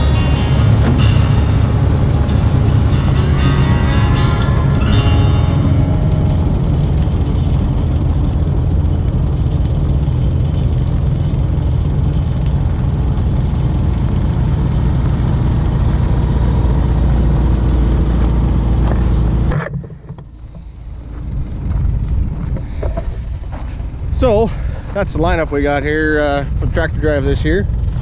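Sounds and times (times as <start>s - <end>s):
car engine rumbling: 0.0s - 28.0s
tyres crackling over gravel: 20.6s - 26.8s.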